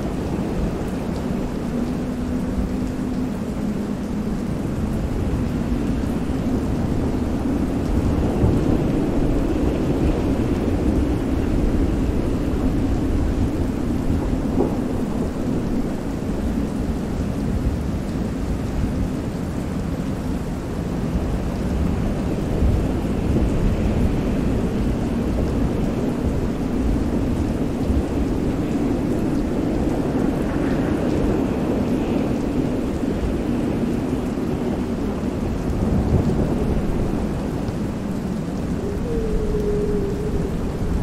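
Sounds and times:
thunder rumbling: 0.0s - 17.8s, 21.0s - 41.0s
heavy rain: 0.0s - 41.0s
waves: 0.0s - 41.0s
wind: 0.0s - 41.0s.

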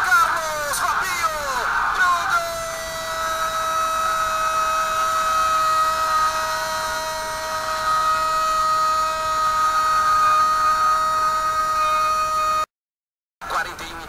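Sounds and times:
commentator shouting goal: 0.0s - 8.6s.

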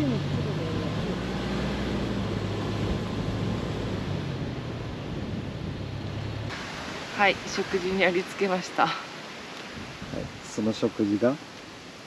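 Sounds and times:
car road and engine noise: 0.0s - 12.0s
even hiss: 6.5s - 12.0s.

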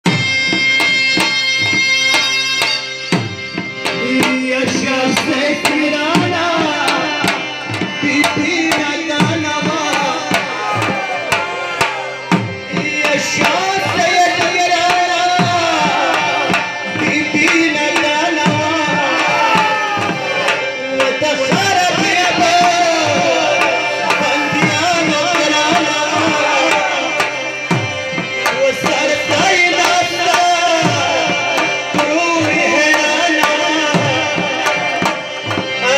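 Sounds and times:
barrel drum beating rhythm: 0.0s - 35.9s
harmonium chords and melody: 0.0s - 35.9s.

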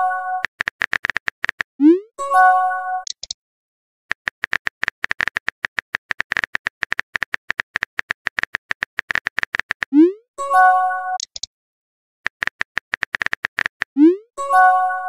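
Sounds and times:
phone keyboard tapping clicks: 0.4s - 1.7s, 3.0s - 3.4s, 4.1s - 9.9s, 11.2s - 11.5s, 12.3s - 14.0s.

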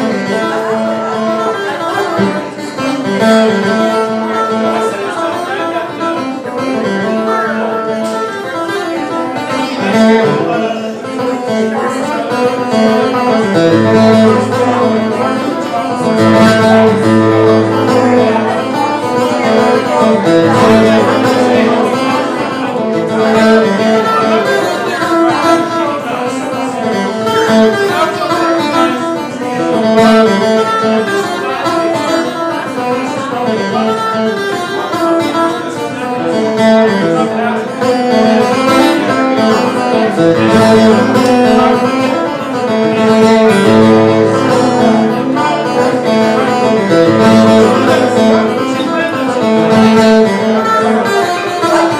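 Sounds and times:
acoustic guitar picking and strumming: 0.0s - 51.9s
keyboard playing: 8.9s - 26.5s, 37.0s - 51.9s.

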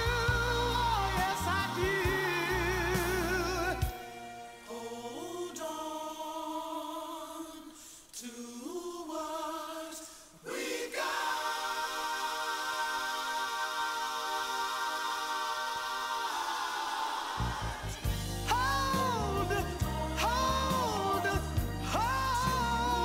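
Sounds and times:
bass and drums: 0.0s - 4.0s, 17.4s - 23.0s
wordless sung harmonies: 0.0s - 23.0s.

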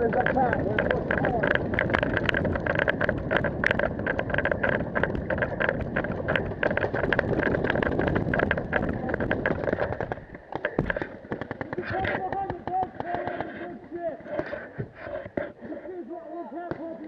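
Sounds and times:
wind rushing over microphone: 0.0s - 10.4s
clatter of sharp clicks: 0.0s - 13.7s.

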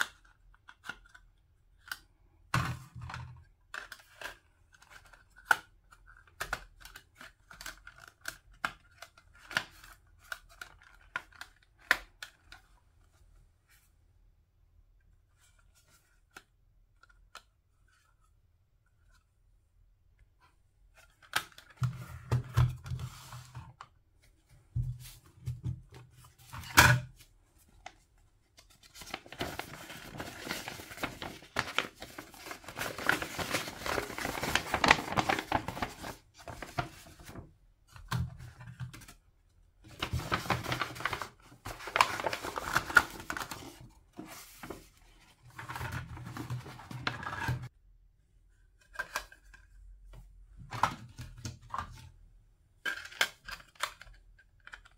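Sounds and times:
paper bag rustling: 29.0s - 36.8s.

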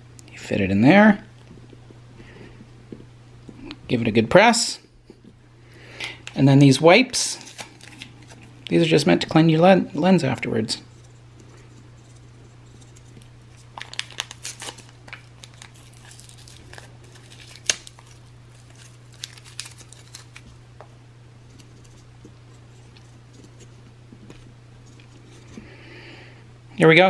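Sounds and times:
steady low hum: 0.0s - 27.0s
packaging crackling: 7.4s - 8.6s, 12.9s - 20.6s.

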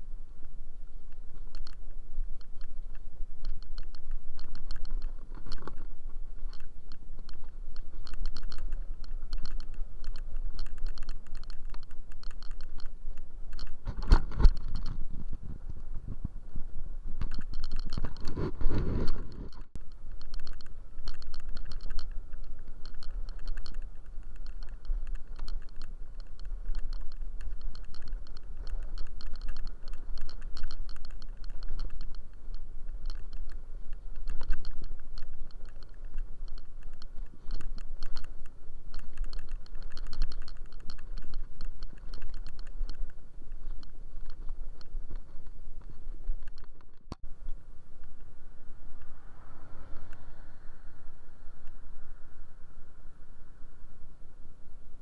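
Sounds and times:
scooter ride rumble: 0.0s - 55.0s
rushes of noise: 0.2s - 55.0s
clicking and rattling: 2.4s - 16.2s, 17.2s - 47.2s.

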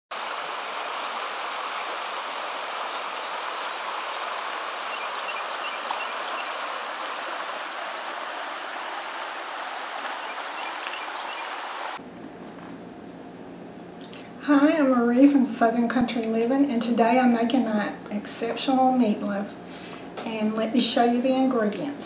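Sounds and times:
creek running over rocks: 0.1s - 12.0s.

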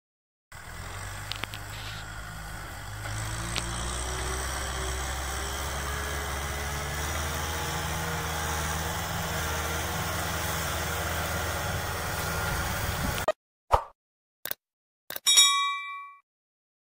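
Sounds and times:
tractor diesel engine under load: 0.5s - 13.3s.

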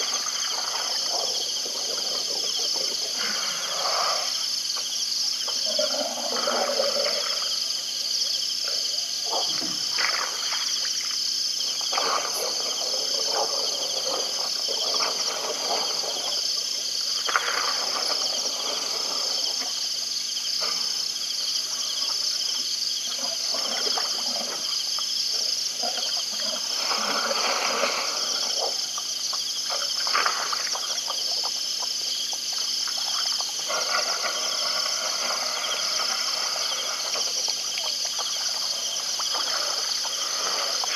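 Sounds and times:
insects trilling: 0.0s - 40.9s
low animal sounds: 5.5s - 7.5s.

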